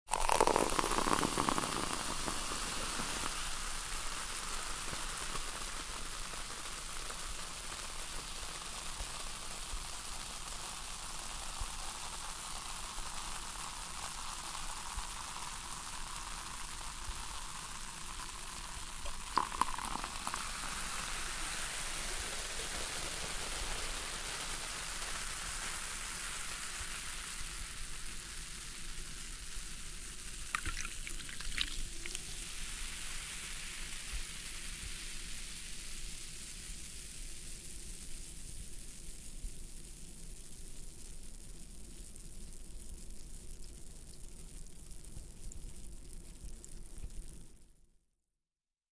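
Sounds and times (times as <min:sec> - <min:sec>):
soda fizzing in a glass: 0:00.1 - 0:36.6.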